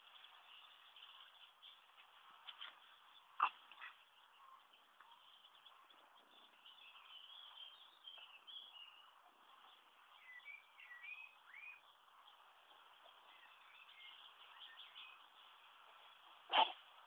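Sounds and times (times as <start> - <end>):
low steady hiss: 0.0 - 17.0.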